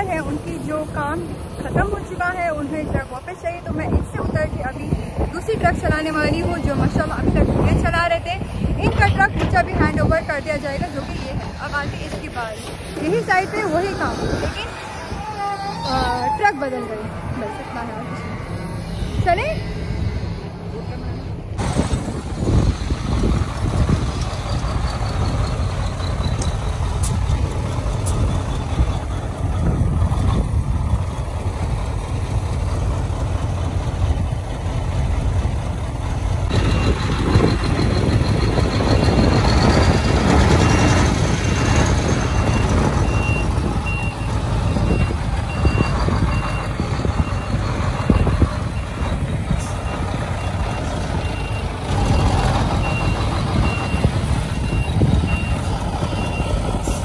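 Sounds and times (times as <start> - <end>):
diesel truck engine rumbling: 0.0 - 57.0
reversing alarm beeping: 36.5 - 57.0.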